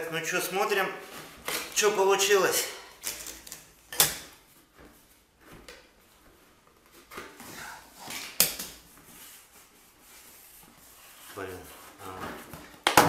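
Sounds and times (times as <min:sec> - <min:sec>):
soft taps and rustles: 0:04.4 - 0:07.6.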